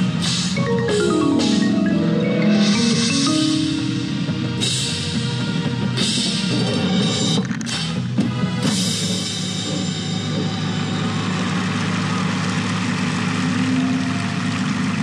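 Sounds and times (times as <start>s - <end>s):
sharp percussion hits: 0.2s - 6.6s.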